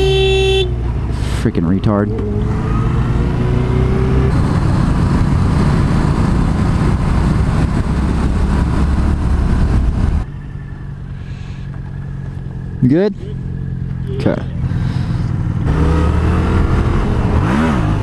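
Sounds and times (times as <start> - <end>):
wind and road rush: 0.0 - 18.0
motorcycle engine running: 3.1 - 18.0.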